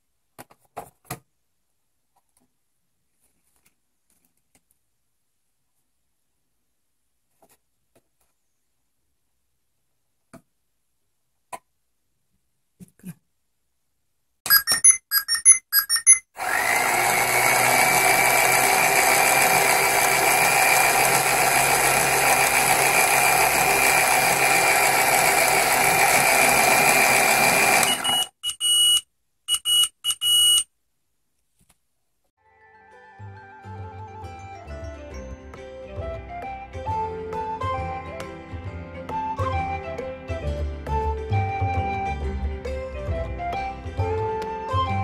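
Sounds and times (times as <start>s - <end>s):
electronic beeps: 14.5s - 16.4s
toy motor whining: 14.5s - 28.3s.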